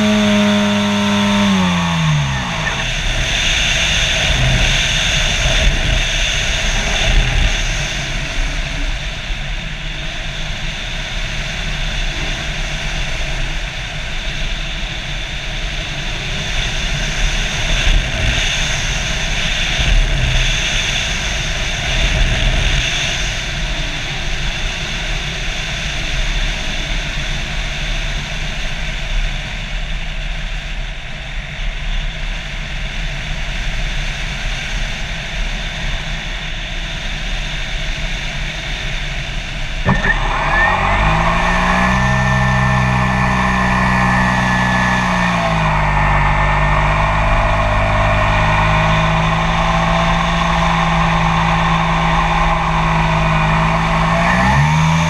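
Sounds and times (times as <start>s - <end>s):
model airplane motor whine: 0.0s - 9.2s, 39.8s - 55.0s.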